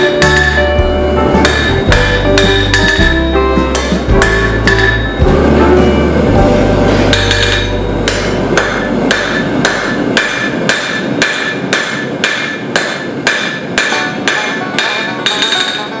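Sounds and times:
hammer striking steel on anvil: 0.0 - 5.4, 7.0 - 16.0.

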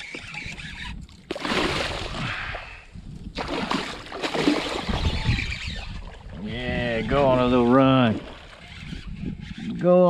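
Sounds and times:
fish thrashing water splashing: 1.2 - 2.2, 3.4 - 6.3.

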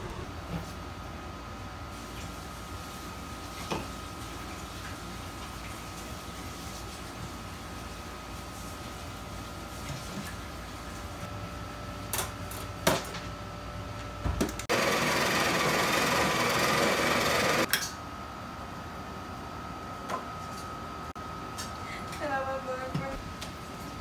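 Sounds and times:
coffee grinder running: 14.7 - 17.7.

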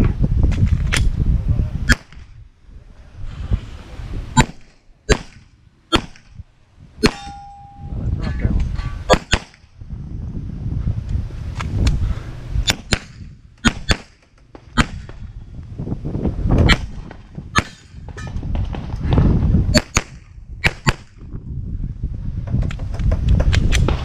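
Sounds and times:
wind rumble on camera: 0.0 - 24.0
pistol shots: 4.4 - 6.3, 9.1 - 9.7, 12.7 - 15.2, 17.6 - 18.1
steel target ringing: 7.0 - 8.1.

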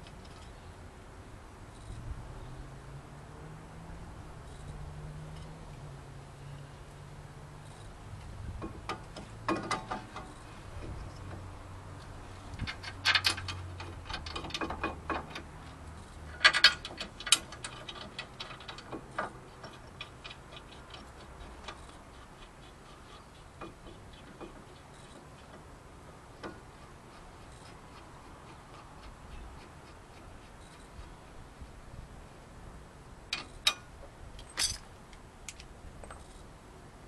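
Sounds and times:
metal clicks and clatters: 8.6 - 11.4, 12.5 - 25.7.

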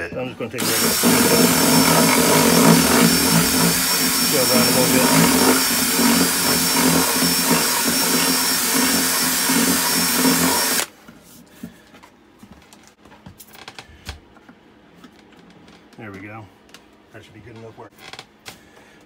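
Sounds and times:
cordless drill reaming wood: 0.6 - 10.9.

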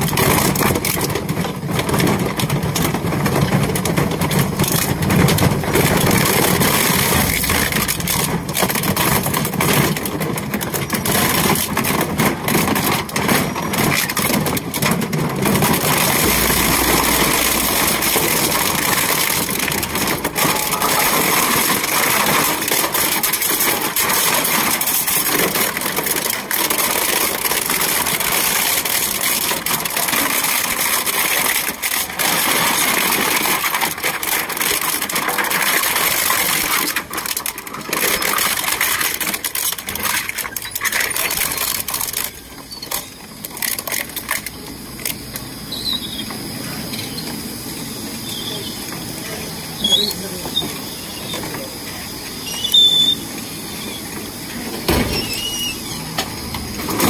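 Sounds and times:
shredder crunching plastic: 0.0 - 57.0.

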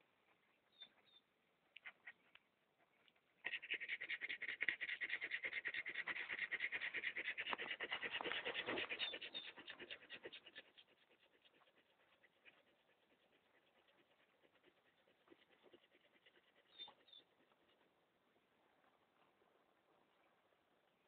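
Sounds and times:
dog making rapid rhythmic sound: 3.4 - 17.6.

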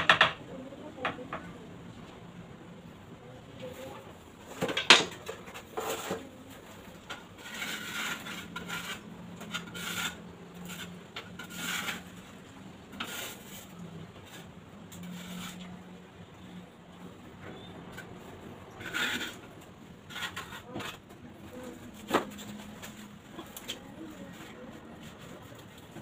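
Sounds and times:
trowel scraping mortar: 5.4 - 16.0, 18.7 - 24.2.

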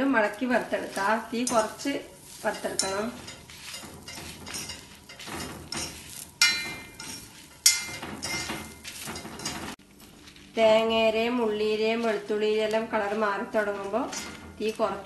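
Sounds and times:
spoon stirring and scraping pan: 0.2 - 10.6, 11.8 - 15.0
spoon clinking on pan: 2.5 - 9.7.

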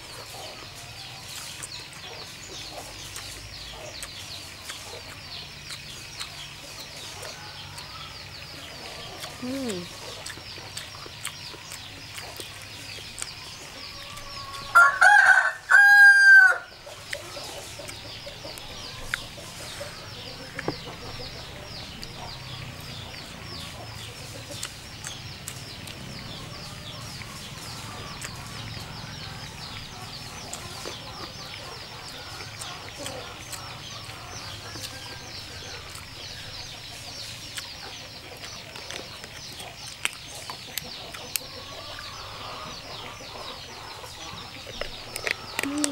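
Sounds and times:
rooster crowing: 13.9 - 16.7.

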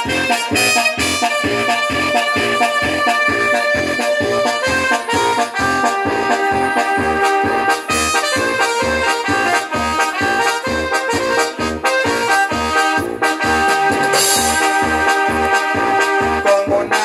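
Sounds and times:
latin dance music with accordion: 0.0 - 17.0.

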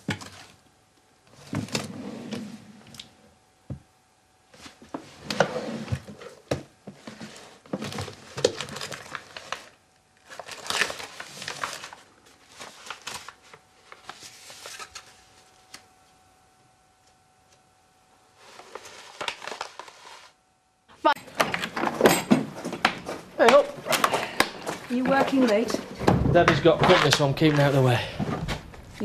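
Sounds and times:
rustling and crinkling belongings: 4.4 - 16.3, 18.3 - 20.4, 21.2 - 29.0.

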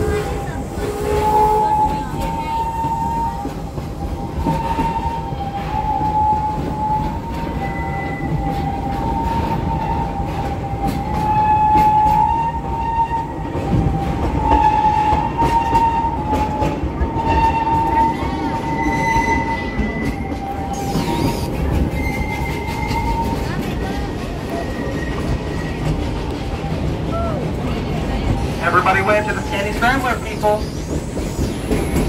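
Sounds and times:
train wheels rumbling: 0.0 - 32.0
wheel flanges squealing on rails: 14.3 - 32.0.

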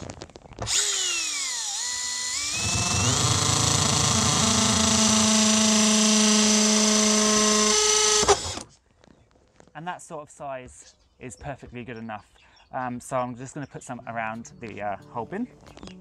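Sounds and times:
cordless drill boring into plastic: 0.6 - 8.7.

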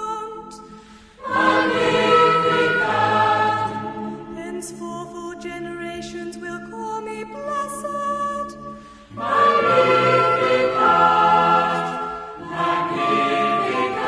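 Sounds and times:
choir singing sustained chords: 0.3 - 5.1, 8.5 - 14.0.

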